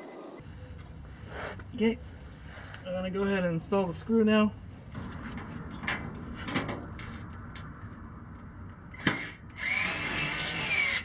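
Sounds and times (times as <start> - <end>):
cordless drill motor whining: 9.0 - 11.0.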